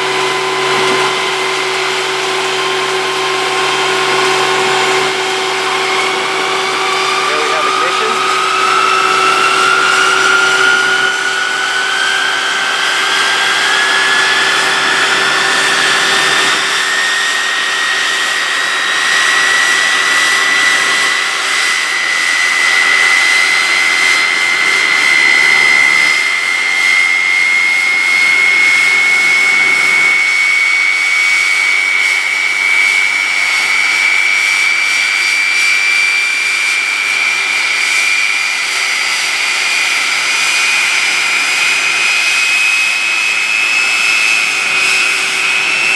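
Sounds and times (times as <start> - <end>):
gas turbine spooling up: 0.0 - 21.4
rushing whine: 0.0 - 45.9.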